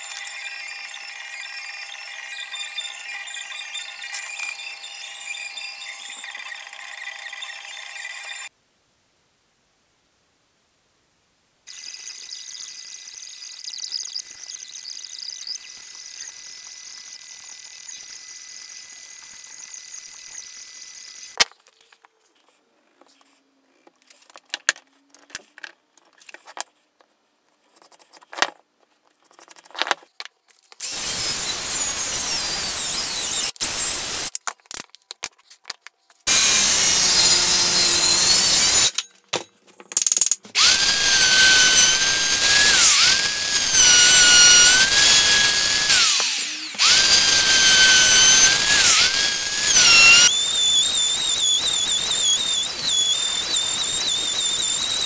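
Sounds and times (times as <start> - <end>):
circular saw cutting board: 0.0 - 8.5, 11.7 - 21.4, 36.3 - 39.0, 40.5 - 55.0
router high steady whine: 40.6 - 55.0.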